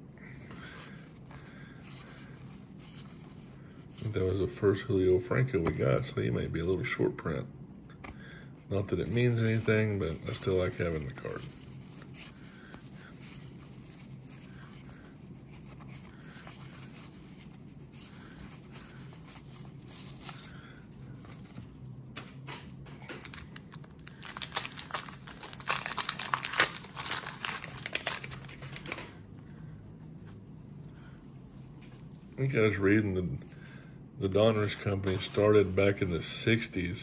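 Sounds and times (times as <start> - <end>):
cards handled softly: 7.9 - 30.8, 31.6 - 37.0
paper wrapper crinkling and tearing: 9.0 - 21.6, 23.0 - 29.2, 33.6 - 36.8.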